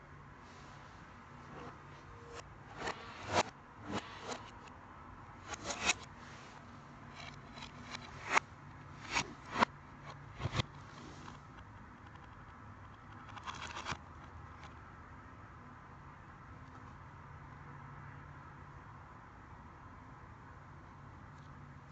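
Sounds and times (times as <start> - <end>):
clicks and scrapes of handling: 0.5 - 4.7, 5.4 - 14.8.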